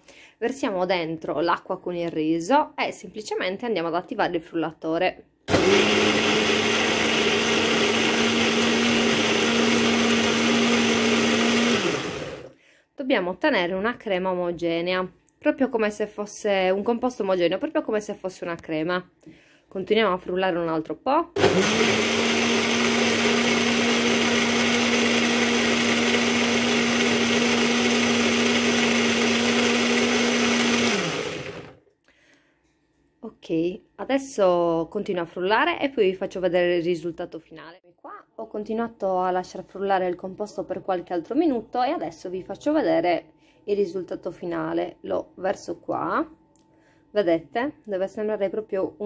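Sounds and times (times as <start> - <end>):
blender running: 5.5 - 12.6, 21.4 - 31.8.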